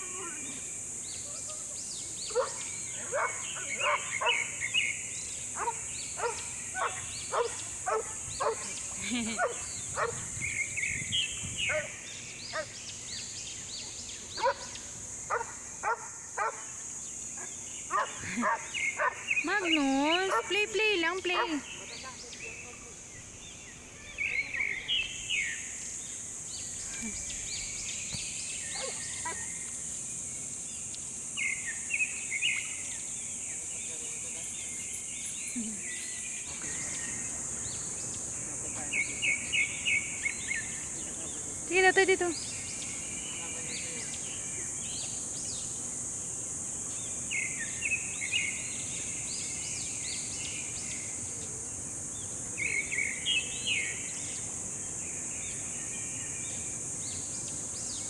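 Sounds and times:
birds chirping: 0.0s - 58.0s
high-pitched insect drone: 0.0s - 58.0s
dog barking aggressively: 2.3s - 4.5s, 5.6s - 8.7s, 9.4s - 10.3s, 14.4s - 14.7s, 15.3s - 16.6s, 17.9s - 19.2s.

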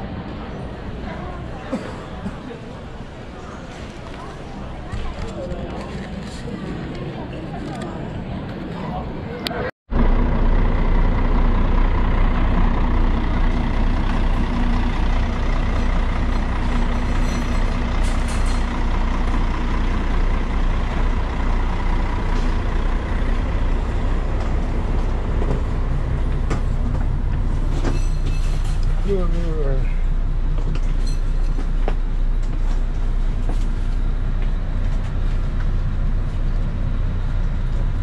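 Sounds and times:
diesel engine idling: 9.9s - 38.0s.

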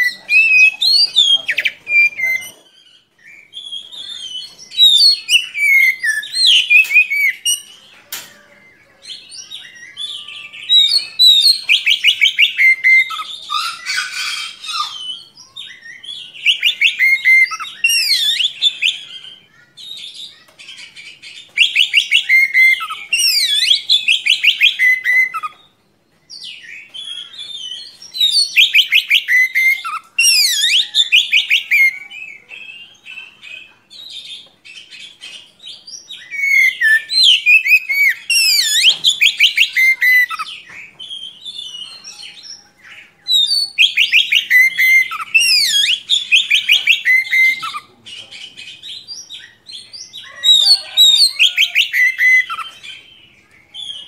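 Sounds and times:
bird singing whistles and trills: 0.0s - 7.8s, 8.6s - 13.8s, 14.6s - 20.4s, 21.0s - 54.0s.

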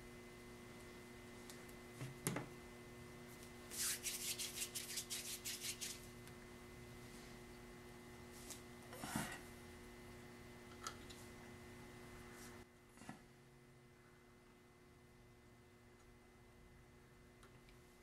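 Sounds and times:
steady low hum: 0.0s - 18.0s
hands rubbing clay: 3.7s - 6.0s.

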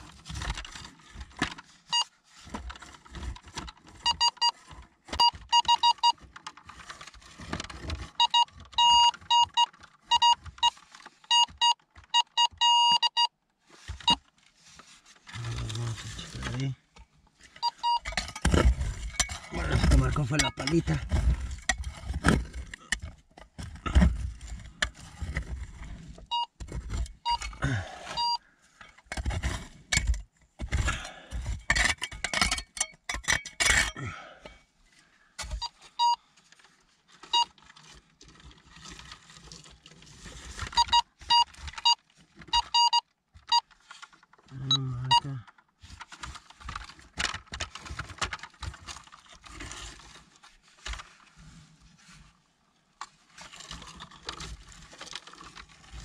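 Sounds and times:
metal detector short beeps: 5.2s - 6.2s, 8.2s - 10.4s, 11.3s - 13.3s, 17.6s - 18.0s, 20.4s - 20.8s, 27.3s - 27.5s, 28.2s - 28.4s, 35.6s - 36.2s, 40.8s - 42.0s, 42.6s - 43.6s.

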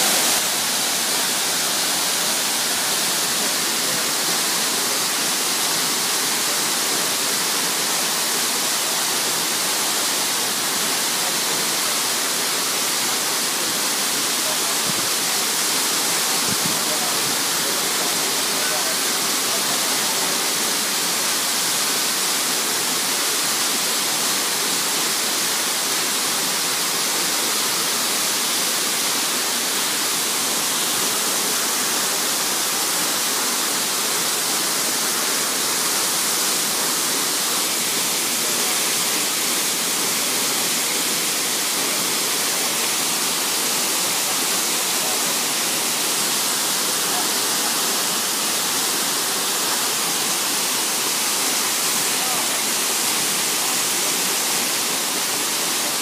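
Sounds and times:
stream running over rocks: 0.0s - 56.0s
waterfall pouring into pool: 0.0s - 56.0s.

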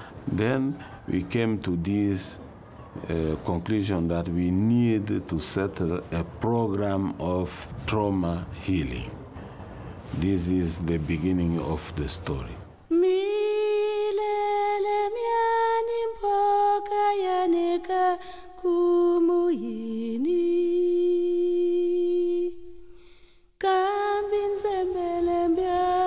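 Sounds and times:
person singing unaccompanied: 10.1s - 22.9s, 23.6s - 26.0s.

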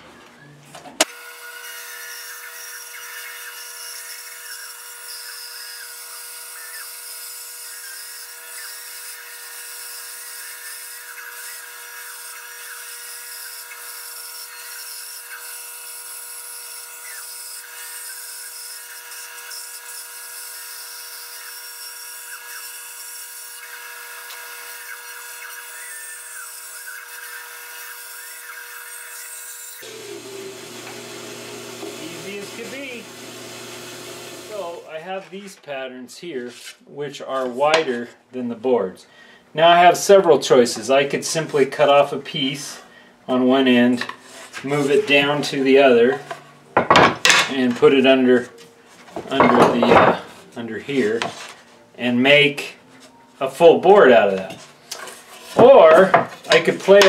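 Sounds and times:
band saw cutting wood: 1.0s - 34.9s.

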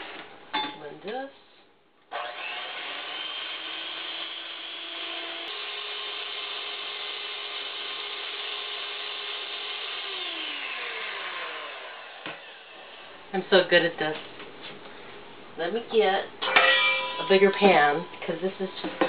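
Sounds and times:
electric hand mixer whirring: 2.1s - 13.2s.

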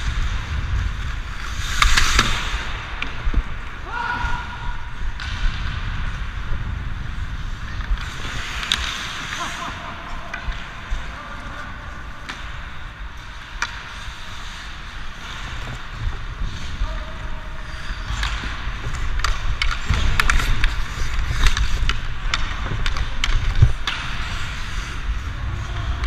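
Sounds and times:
hockey sticks and puck clacking: 0.0s - 26.0s
skates scraping on ice: 0.0s - 26.0s
low rumble of air on microphone: 2.2s - 8.7s.

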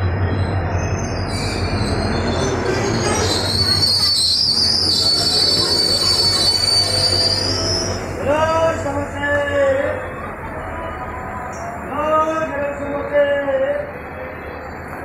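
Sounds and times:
train wheels squealing on rails: 0.0s - 9.2s
low rumble of train coaches: 0.0s - 15.0s.

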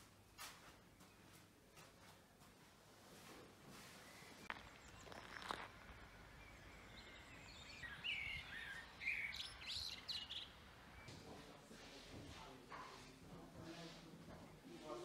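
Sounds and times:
songbird chirping and whistling: 6.5s - 11.4s.

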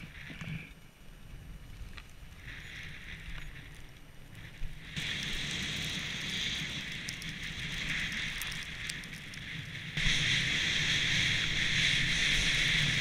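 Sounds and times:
wind rumbling on microphone: 0.0s - 13.0s
skis hissing through powder snow: 4.4s - 13.0s.

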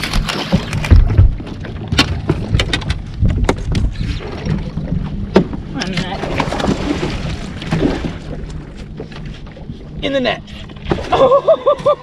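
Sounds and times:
sharp clicks and knocks: 0.0s - 3.9s
wind rumbling on microphone: 0.0s - 8.5s.

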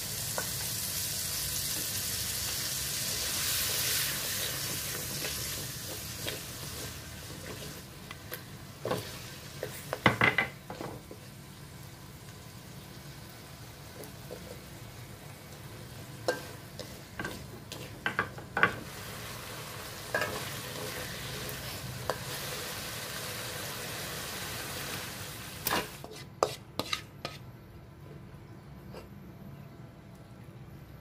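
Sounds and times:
food sizzling: 0.0s - 27.0s
spatula scraping a wok: 16.2s - 23.0s, 25.6s - 27.5s.

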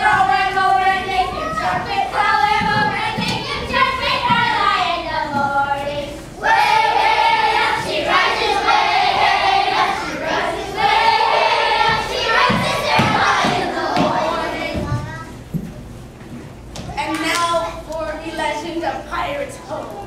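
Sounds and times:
children singing: 0.0s - 15.0s.

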